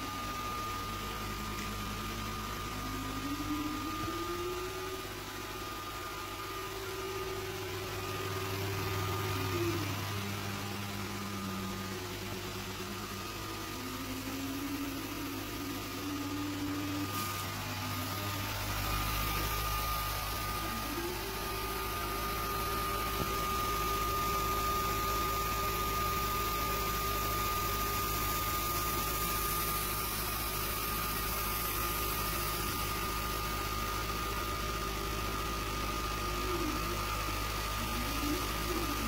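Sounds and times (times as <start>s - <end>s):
laser engraver humming: 0.0s - 39.0s
wavering low motor tone: 0.0s - 39.0s.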